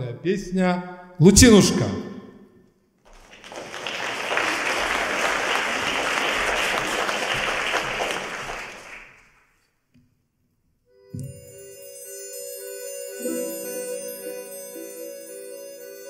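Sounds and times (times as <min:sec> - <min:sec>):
audience applauding: 0:03.1 - 0:09.5
folk instrument orchestra playing: 0:11.2 - 0:16.0.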